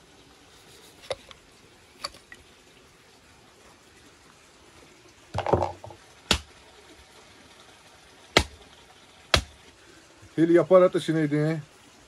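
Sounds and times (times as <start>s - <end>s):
handling rustle and clatter: 0.6s - 1.4s
hatchet chopping: 6.3s - 6.5s, 8.4s - 8.6s, 9.3s - 9.6s.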